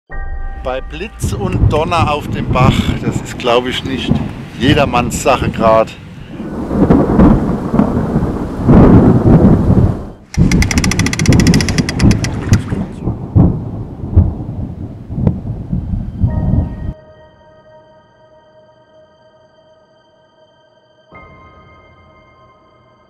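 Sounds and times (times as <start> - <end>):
thunder rumbling: 1.0 - 5.7, 6.3 - 17.0
rain: 1.9 - 11.2, 11.8 - 16.0
fast even ticking: 10.3 - 12.8.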